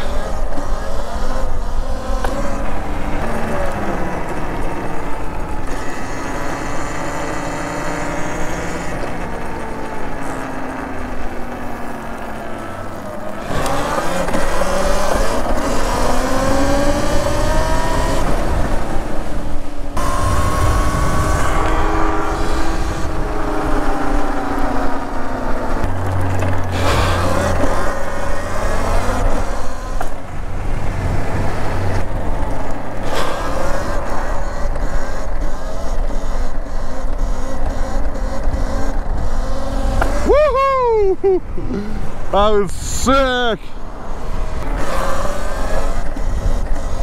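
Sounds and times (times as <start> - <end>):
electric motorcycle motor whining: 0.0 - 40.3, 43.9 - 47.0
wind on microphone: 13.5 - 42.3, 43.9 - 47.0.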